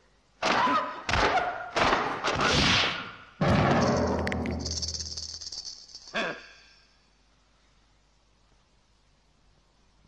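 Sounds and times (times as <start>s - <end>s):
faint hiss: 4.6s - 10.0s.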